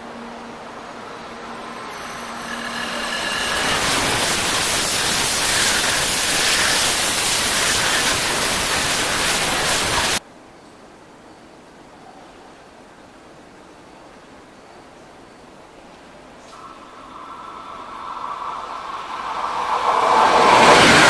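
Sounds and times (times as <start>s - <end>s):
bullet train rushing past: 0.0s - 10.2s, 16.4s - 21.0s.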